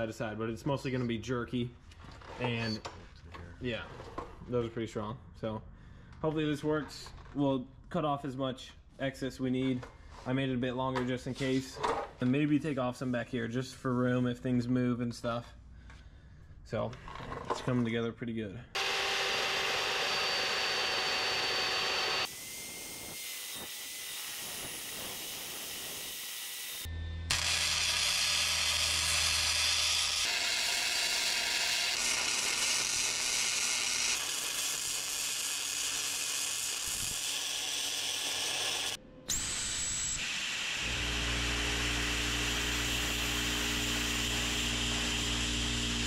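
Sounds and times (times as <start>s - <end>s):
chop saw cutting steel: 18.8s - 46.0s
arc welding hiss: 30.3s - 38.9s.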